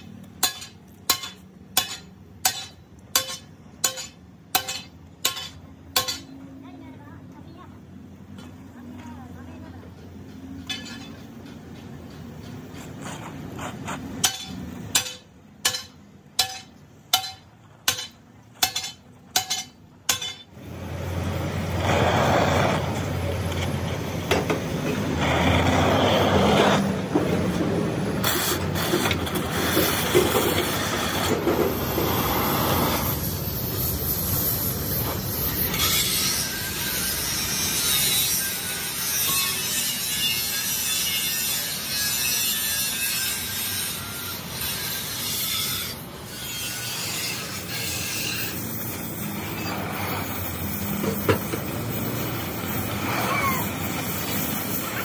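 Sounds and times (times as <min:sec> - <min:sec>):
abrasive rasping on metal: 0:28.2 - 0:51.3.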